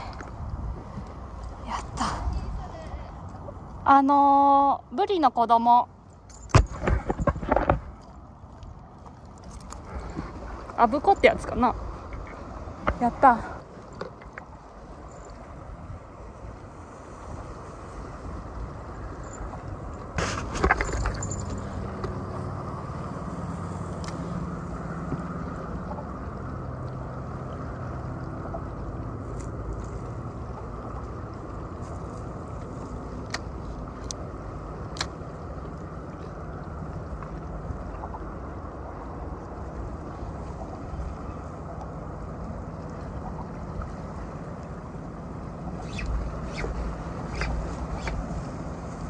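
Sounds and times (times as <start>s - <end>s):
faint low engine hum: 0.0s - 49.0s
seaside wind: 0.0s - 49.0s
water noise: 0.0s - 49.0s
fishing rod clatter: 20.2s - 22.2s.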